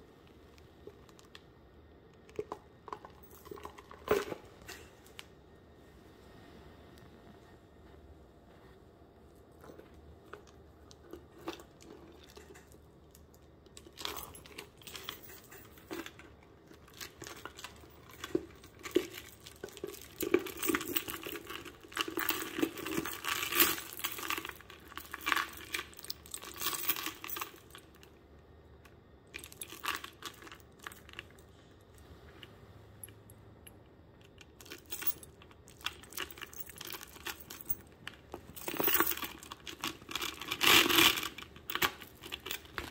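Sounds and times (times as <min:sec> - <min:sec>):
metal chain clinks: 0:13.9 - 0:16.3, 0:16.9 - 0:28.0, 0:34.6 - 0:42.9.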